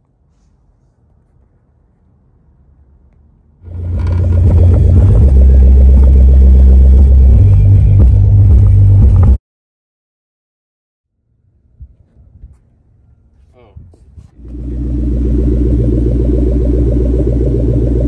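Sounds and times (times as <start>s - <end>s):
loud bass-heavy music: 3.7s - 9.4s, 14.4s - 18.0s.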